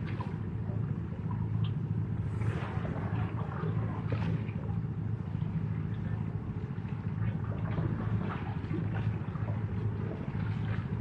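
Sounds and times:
low engine hum: 0.0s - 11.0s
small waves lapping: 2.2s - 11.0s.

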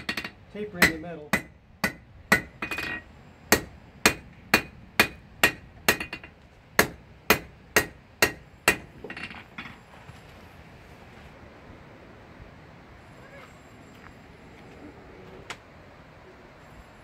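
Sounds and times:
hammer striking metal on anvil: 0.0s - 9.3s.

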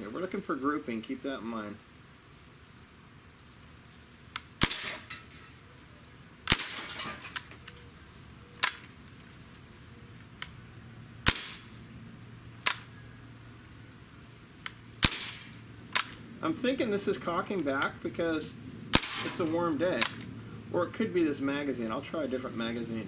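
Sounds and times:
air rifle shots: 4.4s - 5.2s, 6.4s - 7.5s, 11.2s - 11.8s, 12.6s - 12.9s, 15.0s - 16.2s, 18.9s - 20.3s.

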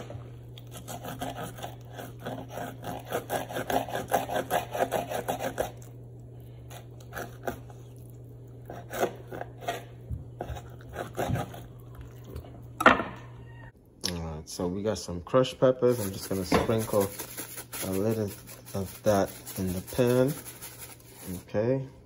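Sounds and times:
knife scraping fish: 0.0s - 6.0s, 6.6s - 7.9s, 8.6s - 11.7s, 15.9s - 21.4s.

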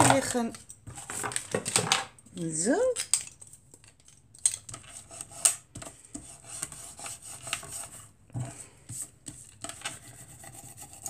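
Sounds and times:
bone folder rubbing on paper: 6.1s - 8.1s, 8.9s - 11.0s.

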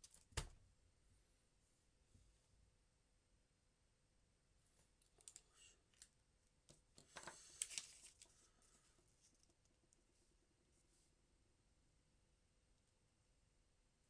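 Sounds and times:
paper sheet rustling: 7.1s - 8.3s.

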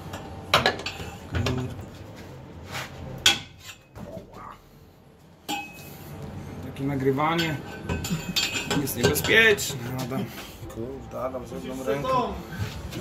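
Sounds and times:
steel tools clanking on metal: 7.3s - 9.7s.

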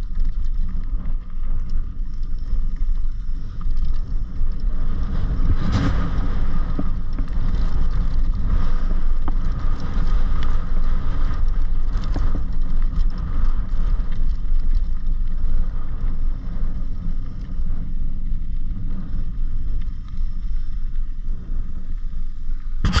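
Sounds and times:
bike tyres rumbling on gravel: 0.0s - 23.0s
wind on microphone: 0.0s - 23.0s
bike clattering over bumps: 22.8s - 23.0s.

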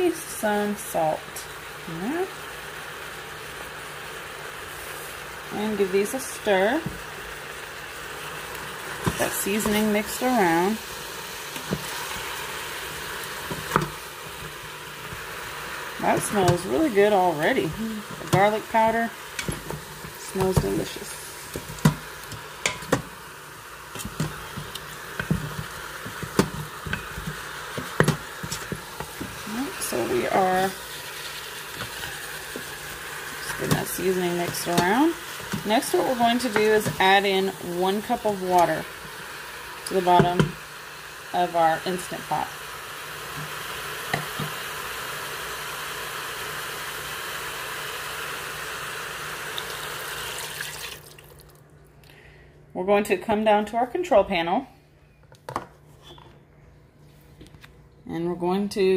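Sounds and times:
meat sizzling in hot oil: 0.0s - 51.4s
wooden spoon knocking on pot: 24.0s - 29.4s, 33.6s - 37.2s
water pouring: 49.5s - 51.6s.

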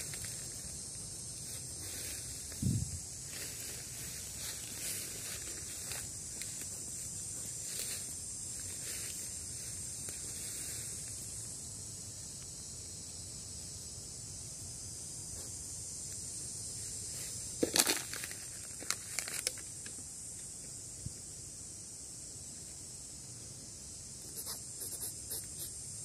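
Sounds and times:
forest litter crackling: 0.0s - 11.2s, 17.0s - 19.7s
insects droning: 0.0s - 26.0s.

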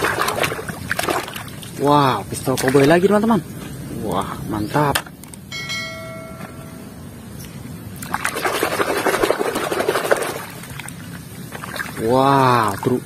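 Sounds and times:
bell-like chime: 5.5s - 7.0s.

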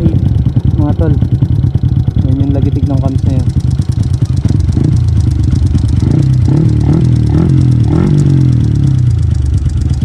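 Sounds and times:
fast valvetrain ticking: 0.0s - 8.0s
motorcycle engine idling and revving: 0.0s - 10.0s.

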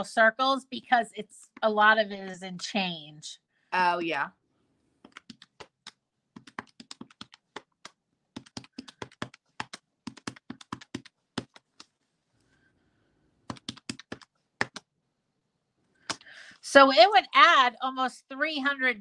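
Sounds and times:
calculator keys clicking: 5.1s - 11.9s.

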